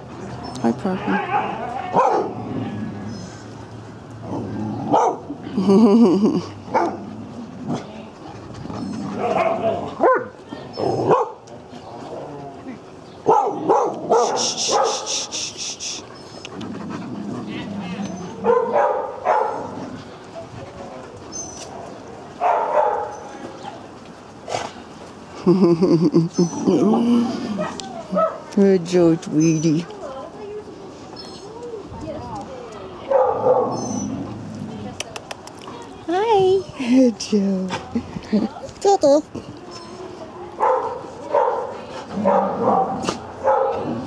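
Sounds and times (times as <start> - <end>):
dog barking: 1.2 - 2.4, 4.9 - 5.2, 6.7 - 7.0, 9.2 - 10.4, 11.0 - 11.4, 13.3 - 15.1, 18.4 - 19.7, 22.4 - 23.2, 27.6 - 28.4, 33.1 - 33.8, 40.6 - 43.9.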